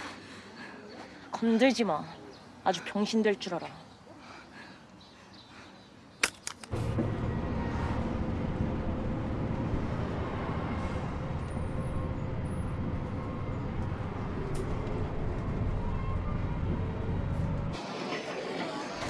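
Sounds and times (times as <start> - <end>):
bus engine rumble: 6.7 - 19.0.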